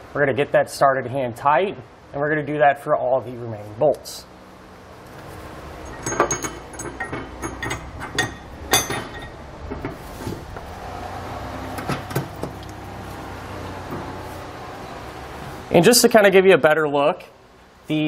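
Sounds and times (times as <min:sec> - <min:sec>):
steel fasteners clinking: 0:05.0 - 0:10.7.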